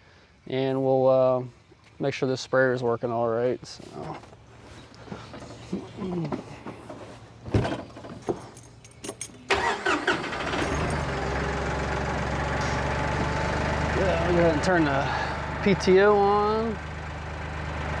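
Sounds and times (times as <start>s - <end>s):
tractor engine cranking and idling: 3.9s - 18.0s.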